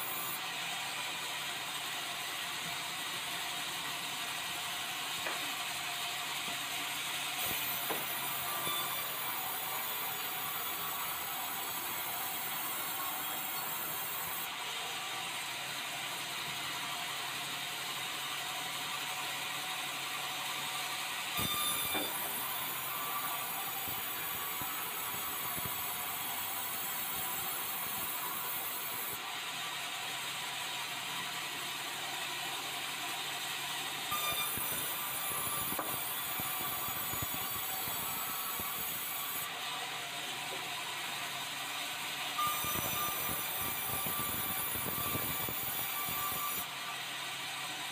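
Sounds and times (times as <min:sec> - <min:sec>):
band saw cutting log: 0:05.0 - 0:14.5, 0:21.3 - 0:29.2, 0:34.1 - 0:39.8, 0:42.4 - 0:46.7.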